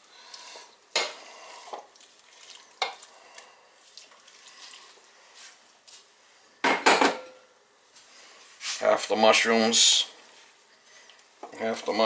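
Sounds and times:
knock on cooking pot: 0:06.6 - 0:07.3.

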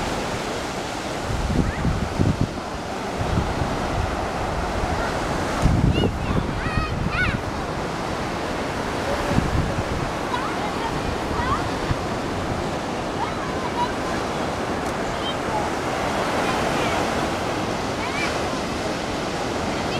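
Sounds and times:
ocean surf washing: 0:00.0 - 0:19.9
wind buffeting microphone: 0:00.0 - 0:19.9.

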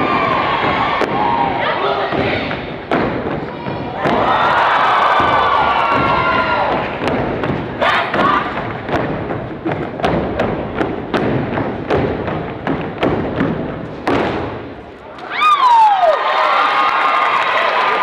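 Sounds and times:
crowd noise: 0:00.0 - 0:12.6, 0:13.6 - 0:18.0
stomps and claps on stage floor: 0:00.0 - 0:15.4.

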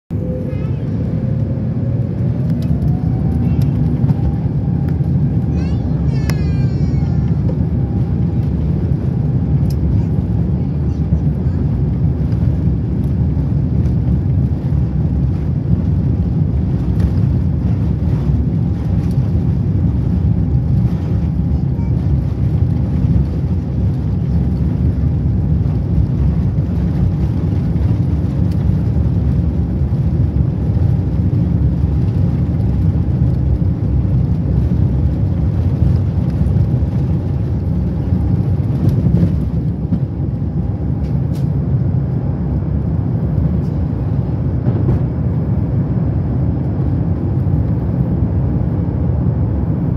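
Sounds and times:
aircraft cabin low rumble: 0:00.1 - 0:49.9.

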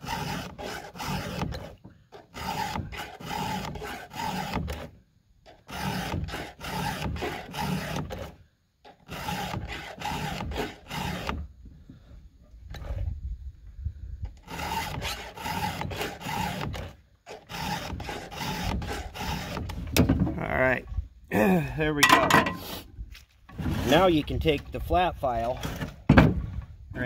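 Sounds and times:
file rasping on saw chain: 0:00.0 - 0:04.9, 0:05.5 - 0:11.4, 0:14.4 - 0:19.8.

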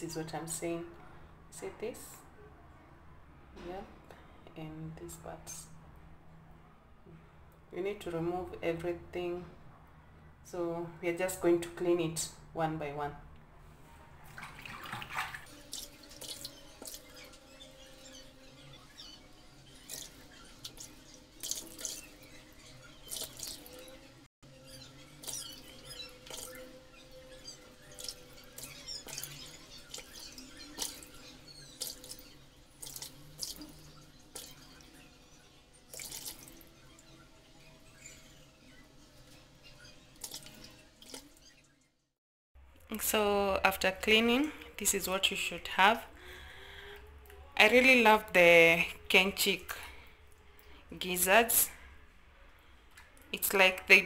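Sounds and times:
water splashing in a bowl: 0:14.2 - 0:17.4, 0:19.7 - 0:23.9, 0:25.2 - 0:26.7, 0:27.3 - 0:35.1, 0:35.9 - 0:37.0, 0:40.2 - 0:41.5.

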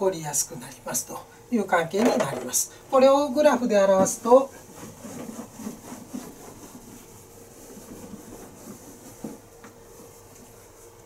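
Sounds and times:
eraser rubbing on whiteboard: 0:04.6 - 0:10.3.

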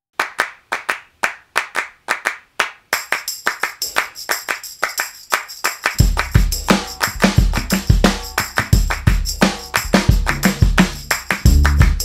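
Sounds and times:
rhythmic hand claps: 0:00.2 - 0:12.0
jingling tambourine: 0:02.9 - 0:12.0.

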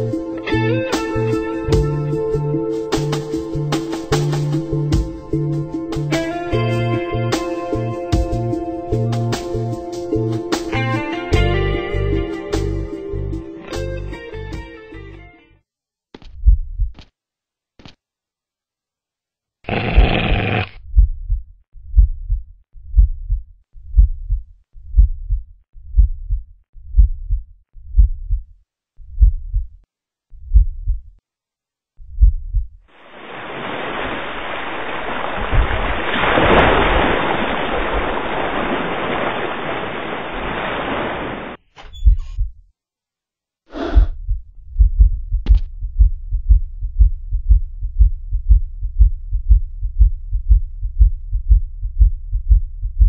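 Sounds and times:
heartbeat thumps: 0:16.3 - 0:17.0, 0:19.7 - 0:31.2, 0:32.0 - 0:32.8, 0:35.5 - 0:35.9, 0:41.9 - 0:42.7, 0:43.8 - 0:53.0.

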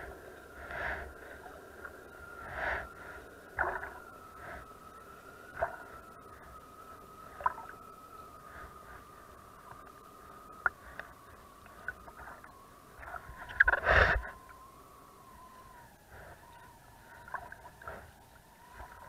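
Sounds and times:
water splashing and lapping: 0:00.0 - 0:04.7, 0:05.5 - 0:06.6, 0:07.3 - 0:09.9, 0:16.1 - 0:19.0
faint steady whine: 0:00.0 - 0:19.0.

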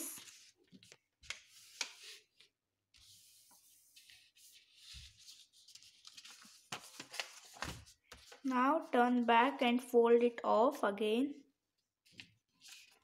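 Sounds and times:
paper rustling and folding: 0:00.0 - 0:09.3, 0:12.0 - 0:13.0.

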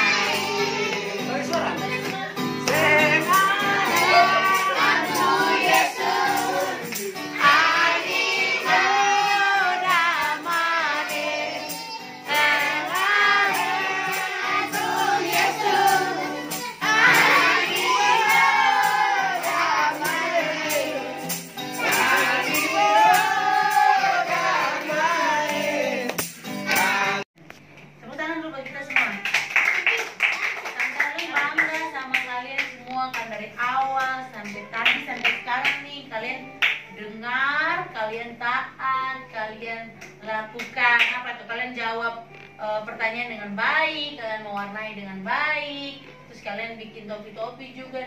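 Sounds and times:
children singing: 0:00.0 - 0:01.4, 0:03.0 - 0:26.0
strummed acoustic guitar: 0:00.0 - 0:27.2.

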